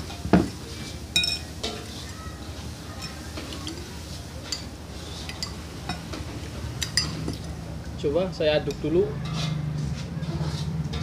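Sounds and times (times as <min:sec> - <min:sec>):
metal spoon clinking on dishes: 0:01.1 - 0:01.9, 0:04.4 - 0:06.2, 0:06.8 - 0:07.4.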